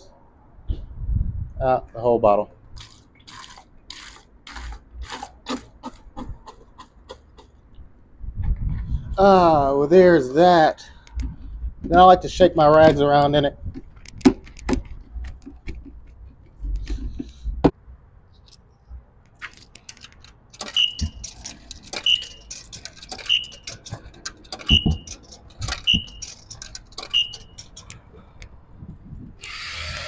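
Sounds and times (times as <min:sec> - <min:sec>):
handling knocks and rattles: 0:11.2 - 0:17.8, 0:19.3 - 0:28.1
coins clinking: 0:19.8 - 0:27.9
short high beep: 0:20.6 - 0:21.3, 0:22.0 - 0:22.5, 0:23.3 - 0:23.8, 0:24.7 - 0:25.1, 0:27.1 - 0:27.6.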